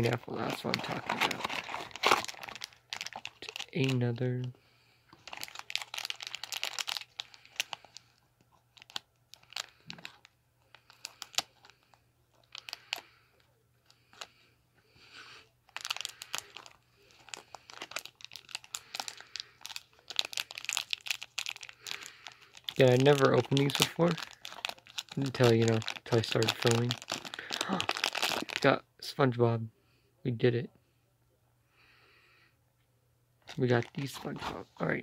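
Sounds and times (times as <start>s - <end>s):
plastic wrapper crinkling and tearing: 0.0s - 4.5s, 5.1s - 13.1s, 15.6s - 28.7s, 33.4s - 34.6s.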